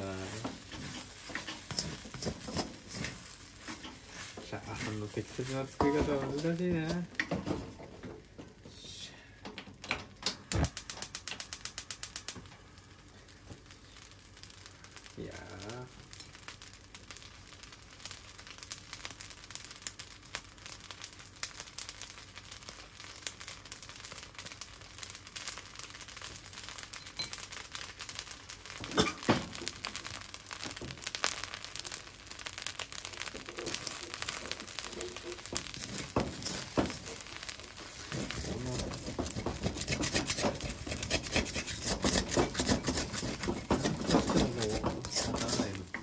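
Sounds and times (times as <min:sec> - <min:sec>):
wooden spatula scraping wok: 0:00.0 - 0:07.7, 0:33.0 - 0:46.0
rice sizzling in a wok: 0:00.0 - 0:46.0
person speaking: 0:04.4 - 0:07.1, 0:38.1 - 0:39.2, 0:43.8 - 0:46.0.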